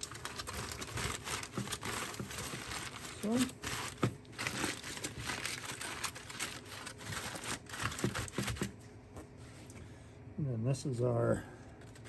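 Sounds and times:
aluminum foil crinkling: 0.0 - 8.7.

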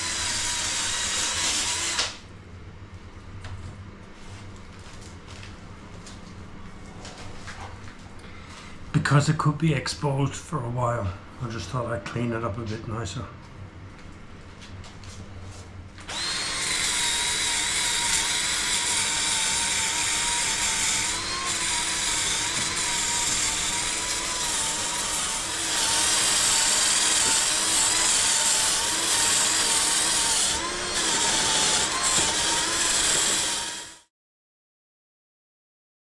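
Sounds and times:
drill motor whine: 0.0 - 2.2, 16.1 - 34.1.

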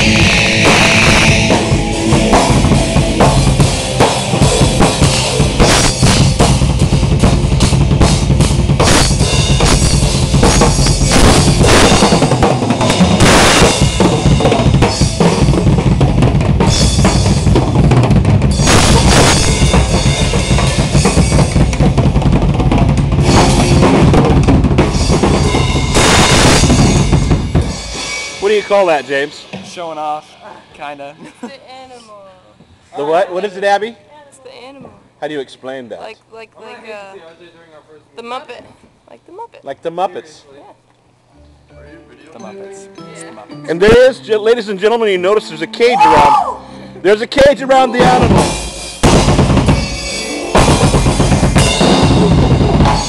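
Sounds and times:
rock drum solo: 0.0 - 30.2, 48.0 - 53.0.

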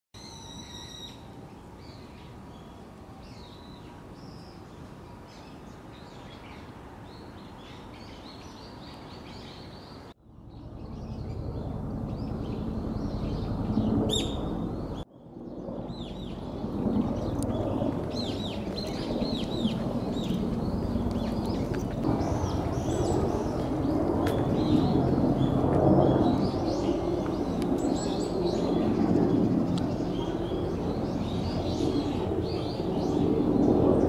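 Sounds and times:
outdoor background noise: 0.2 - 34.0
small birds chirping: 0.2 - 34.0
low rumble: 10.2 - 27.6.

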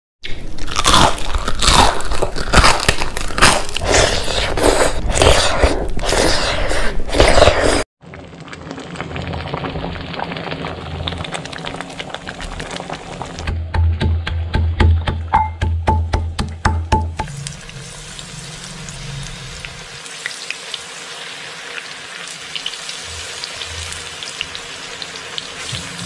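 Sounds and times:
crunching and chewing: 0.2 - 6.3.

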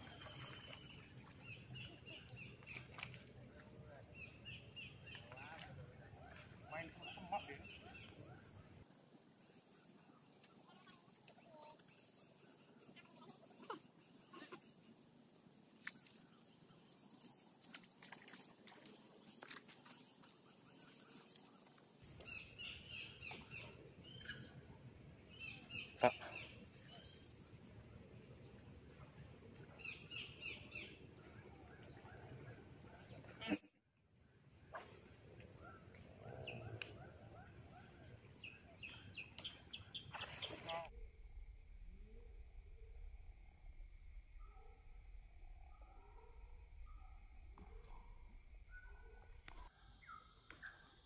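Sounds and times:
small birds chirping: 0.0 - 8.8, 9.4 - 28.0, 29.1 - 33.6, 35.6 - 40.9.

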